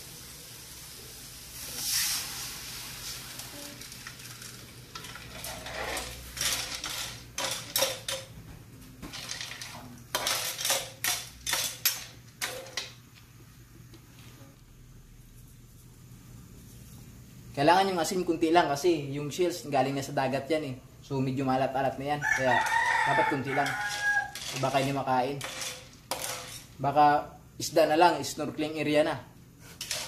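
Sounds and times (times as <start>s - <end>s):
water hissing on hot wok: 0.0s - 6.3s
metal spatula scraping wok: 4.9s - 8.2s, 9.1s - 12.8s, 22.2s - 26.8s, 29.6s - 30.0s.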